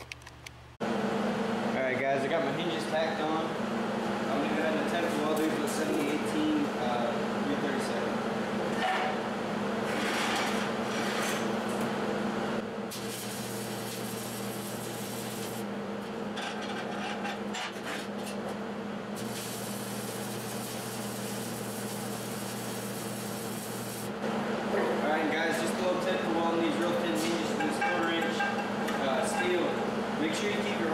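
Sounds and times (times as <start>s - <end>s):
welding machine hum: 9.6s - 16.3s, 19.0s - 24.7s
welding arc crackling and hissing: 12.9s - 15.6s, 19.2s - 24.2s.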